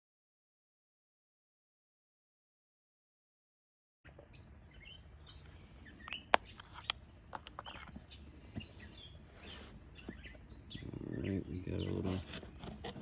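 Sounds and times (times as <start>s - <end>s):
small birds chirping: 4.1s - 13.0s.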